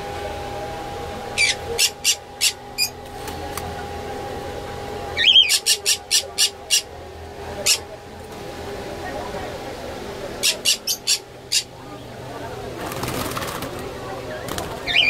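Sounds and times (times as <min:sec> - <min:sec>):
small parrots giving shrill calls: 0:01.4 - 0:03.0, 0:05.2 - 0:06.9, 0:10.4 - 0:11.7.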